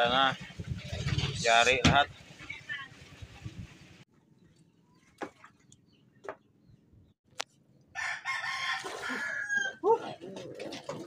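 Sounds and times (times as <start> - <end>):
rooster crowing: 7.9 - 9.8.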